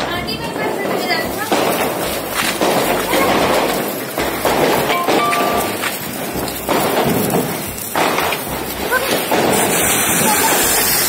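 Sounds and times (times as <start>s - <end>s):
sparklers fizzing and crackling: 0.0s - 11.0s.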